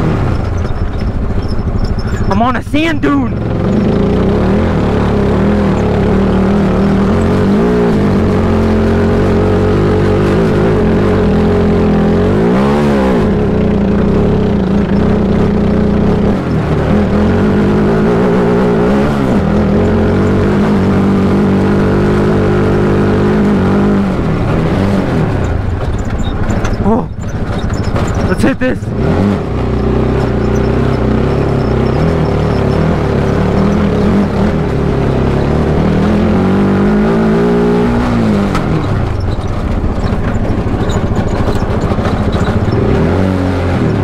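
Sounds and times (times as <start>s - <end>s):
car running on sand: 0.0s - 44.0s.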